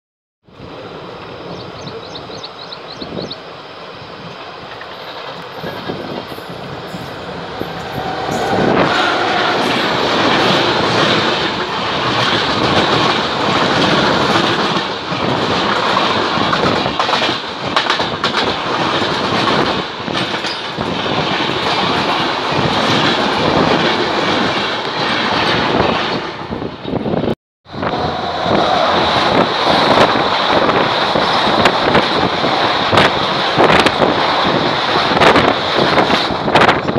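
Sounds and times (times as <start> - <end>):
trains passing roar: 0.5 - 36.9
wheels clattering on rail: 4.2 - 26.2, 27.9 - 36.9.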